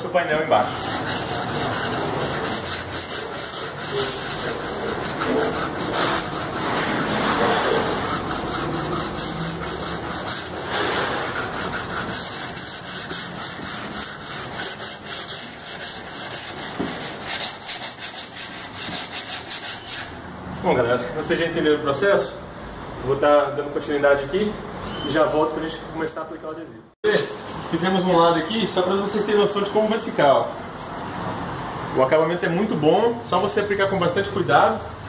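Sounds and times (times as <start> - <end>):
sandpaper scrubbing wet metal: 0.4 - 20.2.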